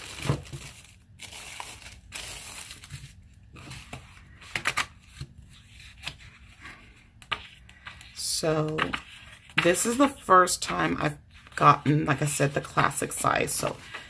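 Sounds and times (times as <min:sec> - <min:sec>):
plastic sleeve crinkling: 0:00.0 - 0:04.8.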